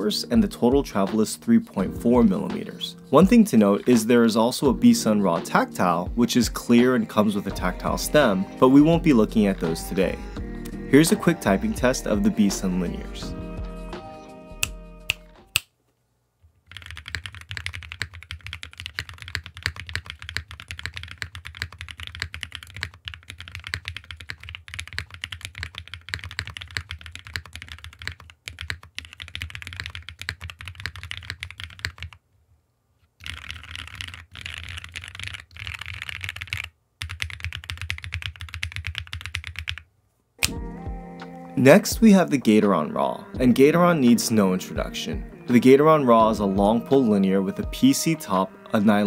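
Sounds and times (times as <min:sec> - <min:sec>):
typing on mechanical keyboard: 0:16.6 - 0:32.2, 0:33.2 - 0:39.9.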